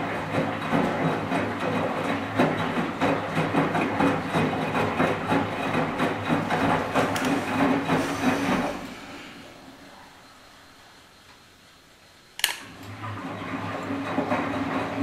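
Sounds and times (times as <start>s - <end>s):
wet laundry sloshing in drum: 0.0s - 9.9s
washing machine motor hum: 0.0s - 15.0s.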